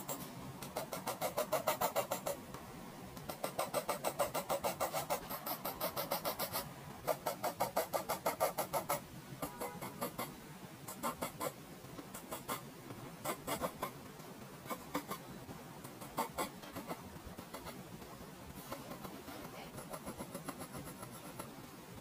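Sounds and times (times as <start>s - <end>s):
pencil scratching on paper: 0.0s - 2.4s, 3.3s - 10.3s, 13.2s - 14.0s, 15.9s - 17.8s, 18.6s - 21.6s.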